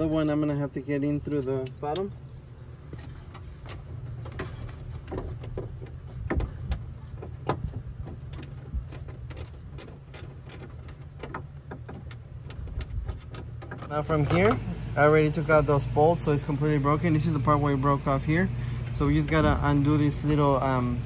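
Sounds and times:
wrench clicks and knocks: 2.9 - 14.6.

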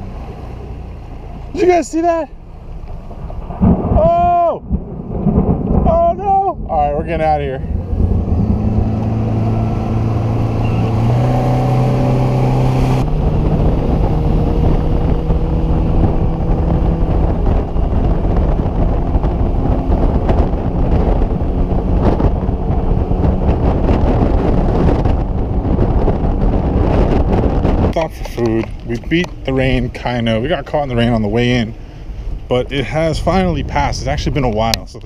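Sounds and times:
wind on microphone: 0.0 - 35.0
outboard motor speeding up: 7.4 - 32.6.

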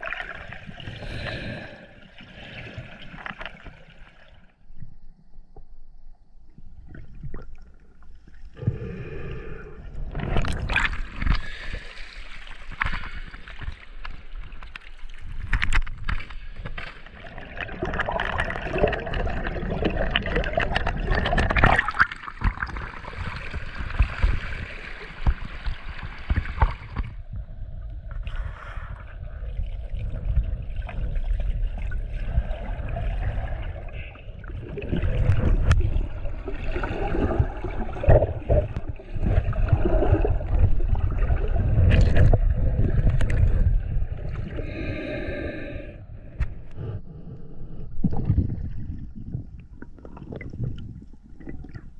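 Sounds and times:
creek water gurgling: 17.1 - 27.0.

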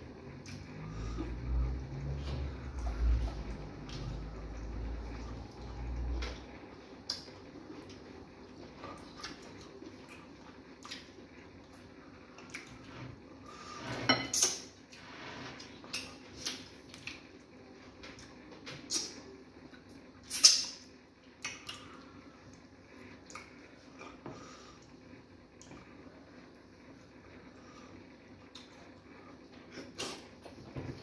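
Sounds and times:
low hum: 0.0 - 10.2.

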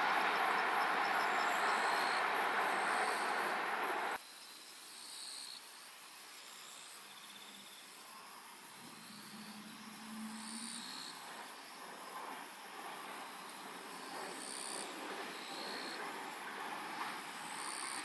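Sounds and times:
train running: 0.0 - 4.2, 9.3 - 18.0
insects chirping: 0.0 - 18.0.

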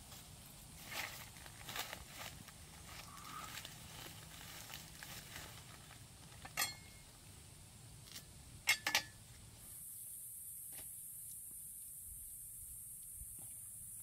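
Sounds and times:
steady high hiss: 0.0 - 14.0.

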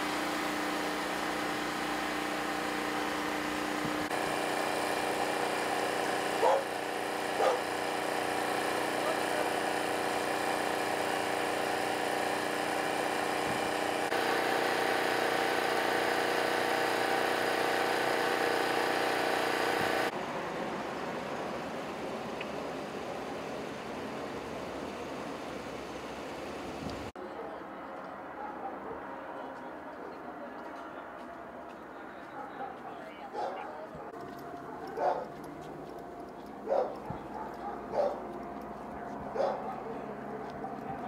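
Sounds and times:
vehicle engines idling: 0.0 - 27.6, 33.0 - 41.0
dog barking: 6.4 - 6.7, 7.4 - 7.7, 28.3 - 29.1, 32.2 - 35.4, 36.6 - 41.0.

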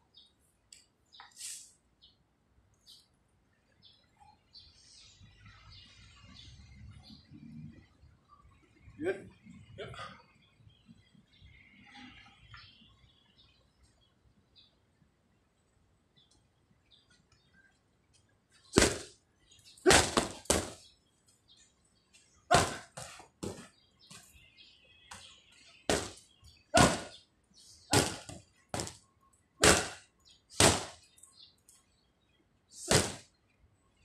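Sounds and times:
boxing gloves hitting mitts: 18.8 - 19.1, 19.9 - 20.8, 22.5 - 24.2, 25.9 - 26.2, 26.8 - 27.1, 27.9 - 29.0, 29.6 - 31.0, 32.8 - 33.2.

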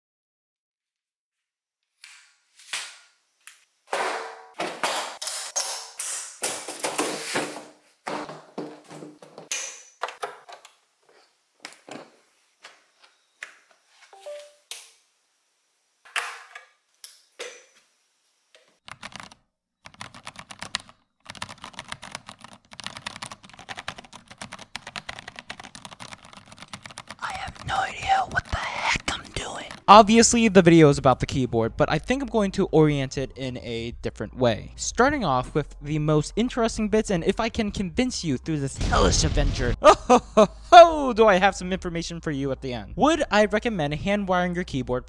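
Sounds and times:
mechanical keyboard typing: 18.9 - 29.8.

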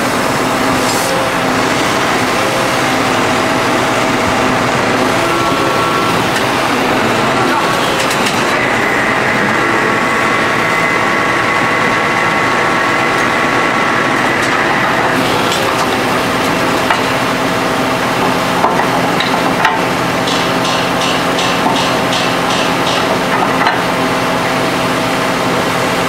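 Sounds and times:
hydraulic machine humming: 0.0 - 26.0
steady whine: 0.0 - 26.0
sharp knocks: 18.6 - 23.8.

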